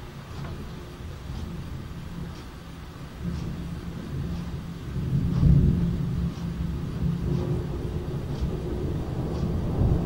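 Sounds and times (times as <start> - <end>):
faint ticks: 3.2 - 10.0
thunder rumbling: 4.9 - 10.0.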